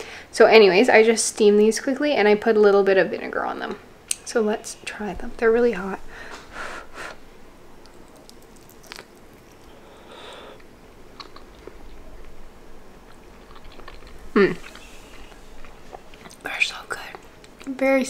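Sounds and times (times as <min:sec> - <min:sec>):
breathy blowing on food: 0:06.1 - 0:07.3, 0:09.6 - 0:10.7
chewing with wet mouth sounds: 0:07.8 - 0:16.5.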